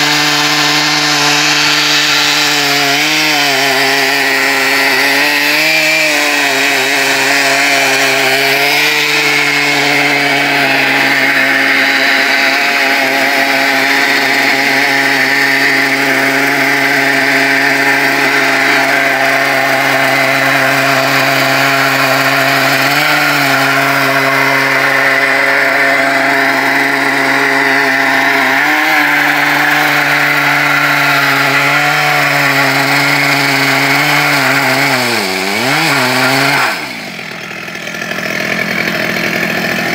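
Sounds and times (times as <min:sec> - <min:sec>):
chainsaw cutting log: 0:00.0 - 0:39.9.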